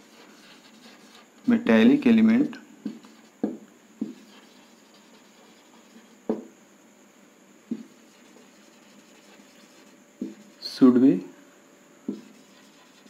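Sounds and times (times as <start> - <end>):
marker writing on whiteboard: 0.0 - 1.3, 2.8 - 6.5, 7.7 - 10.7, 12.0 - 13.0
marker tapping: 2.8 - 6.5, 7.7 - 10.5, 12.0 - 13.0.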